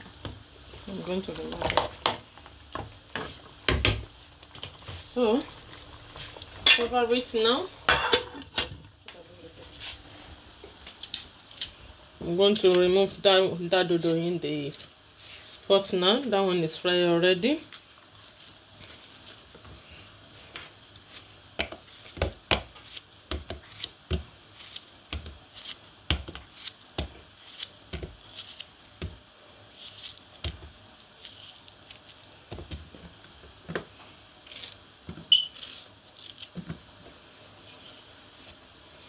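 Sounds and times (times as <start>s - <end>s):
knife slicing plantains: 21.1s - 29.2s
peel tearing: 27.4s - 28.8s, 35.6s - 36.6s.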